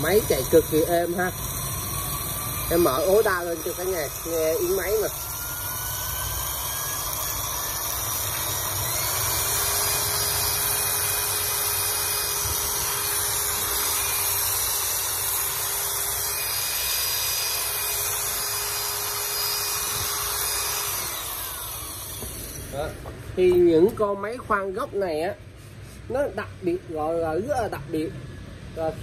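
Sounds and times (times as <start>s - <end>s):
angle drill motor whine: 0.0s - 23.7s.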